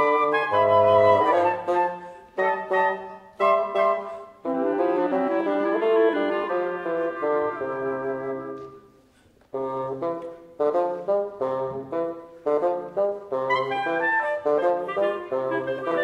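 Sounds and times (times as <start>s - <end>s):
woodwind trio playing a waltz: 0.0s - 16.0s.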